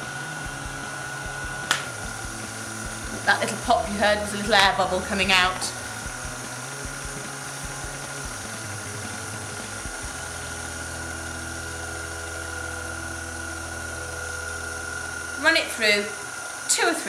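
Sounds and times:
stand mixer motor whining: 0:00.0 - 0:17.0.

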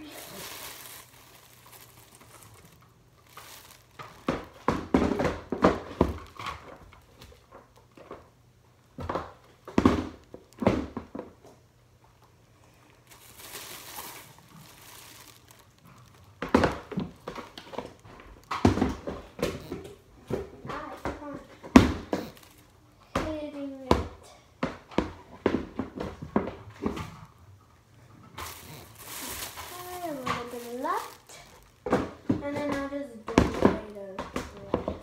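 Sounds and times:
plastic bag crinkling: 0:00.0 - 0:07.2, 0:12.6 - 0:20.0, 0:21.3 - 0:22.8, 0:28.4 - 0:34.1.

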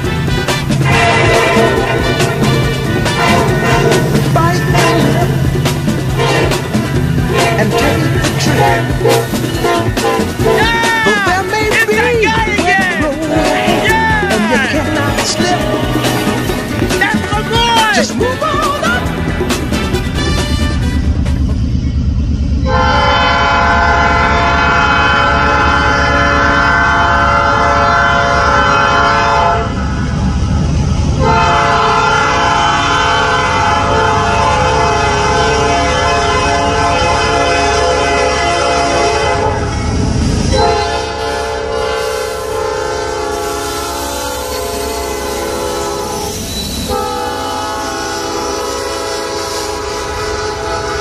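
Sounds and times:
locomotive air horn blasts: 0:00.0 - 0:12.0, 0:19.6 - 0:21.3, 0:22.6 - 0:29.9, 0:31.2 - 0:51.0
low rumble of locomotives: 0:00.0 - 0:51.0.

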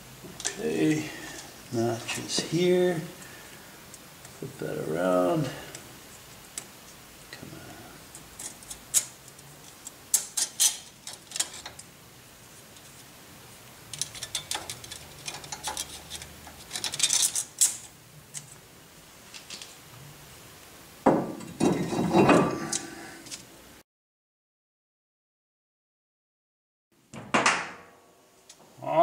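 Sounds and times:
metallic scraping and rattling: 0:08.3 - 0:11.9, 0:13.9 - 0:18.6, 0:21.4 - 0:23.4.

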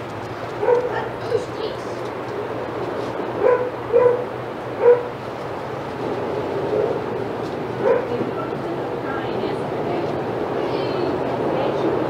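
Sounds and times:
dog barking: 0:00.6 - 0:01.1, 0:03.4 - 0:05.1, 0:07.8 - 0:08.5.

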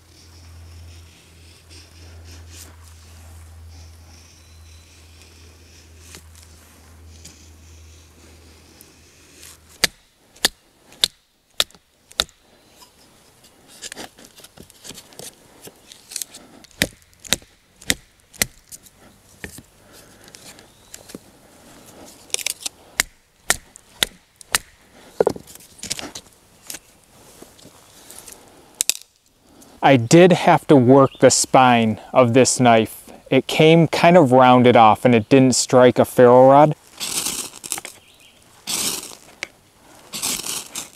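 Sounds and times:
sharp wooden knocks: 0:16.8 - 0:18.6.

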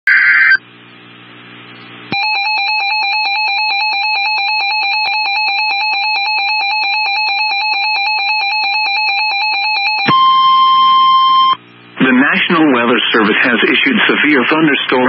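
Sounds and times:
steady high beep: 0:02.1 - 0:11.6.

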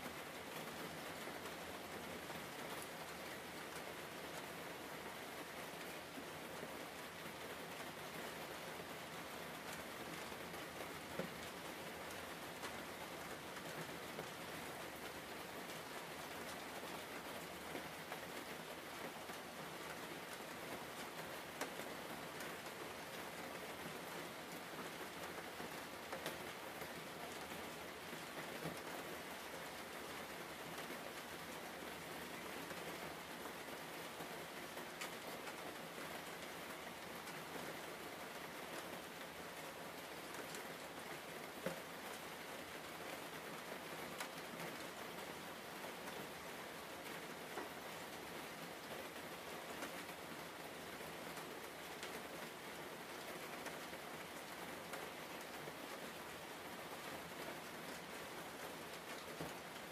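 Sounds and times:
faint ticks: 0:35.0 - 0:35.6.

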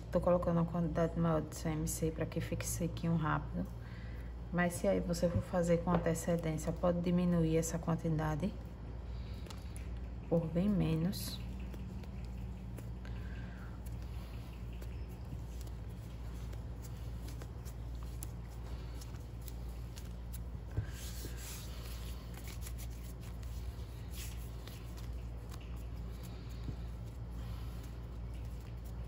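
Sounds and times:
steady low hum: 0:00.0 - 0:29.0
hands kneading sticky paste: 0:06.0 - 0:29.0.

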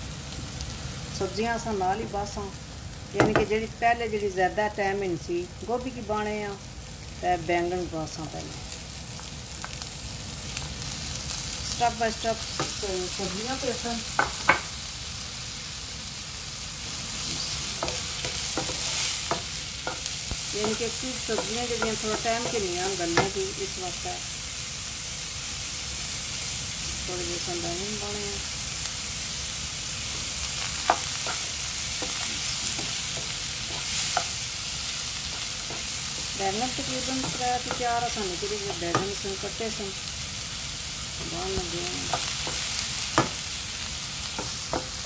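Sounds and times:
vegetables sizzling in oil: 0:00.0 - 0:45.0
spatula tapping and scraping pan: 0:17.8 - 0:23.4, 0:44.4 - 0:45.0
wooden spatula knocking on pan: 0:43.2 - 0:43.4, 0:44.4 - 0:45.0.

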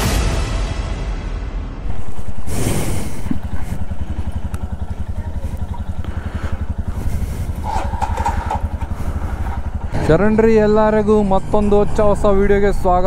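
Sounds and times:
rushing burst: 0:01.8 - 0:04.5
motorcycle engine idling: 0:01.8 - 0:13.0.

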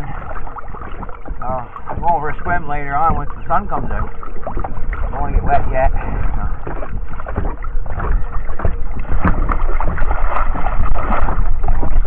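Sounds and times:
water sloshing and splashing: 0:00.0 - 0:12.0
wind rumble on microphone: 0:00.0 - 0:12.0.

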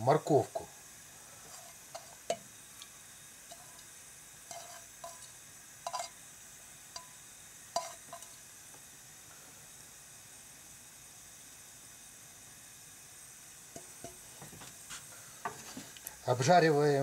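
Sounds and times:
faint steady hiss: 0:00.0 - 0:17.0
taps and clinks against pan: 0:05.9 - 0:06.2, 0:07.0 - 0:07.2, 0:07.8 - 0:08.3.

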